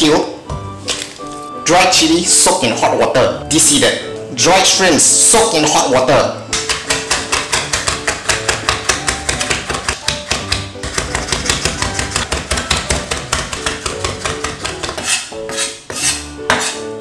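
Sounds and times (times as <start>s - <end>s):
background music: 0.0s - 17.0s
knife chopping on cutting board: 6.5s - 16.8s.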